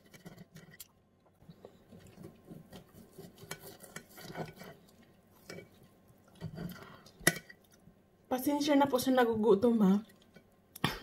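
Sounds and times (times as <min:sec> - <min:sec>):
cutlery scraping on ceramic plate: 0:02.6 - 0:05.8.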